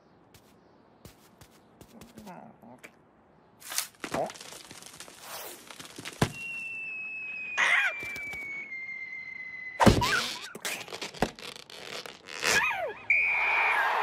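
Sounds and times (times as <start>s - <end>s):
cartoon falling whistle: 6.4s - 10.5s
loud cartoon crash: 9.8s - 10.4s.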